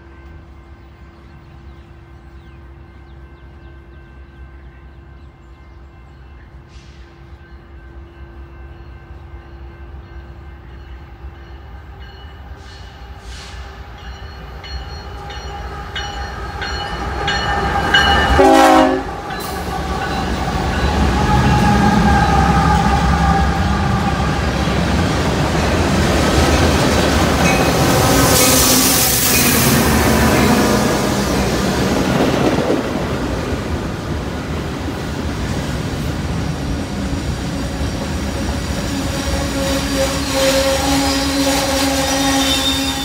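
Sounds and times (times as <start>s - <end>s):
train horn: 15.4s - 24.8s, 38.6s - 43.0s.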